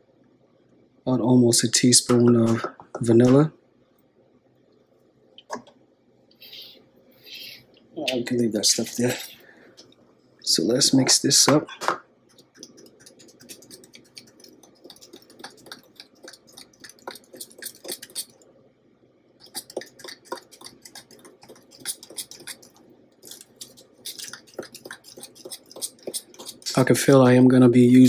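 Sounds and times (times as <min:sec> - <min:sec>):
metal spoon stirring glaze: 0:12.3 - 0:18.4, 0:19.4 - 0:27.0.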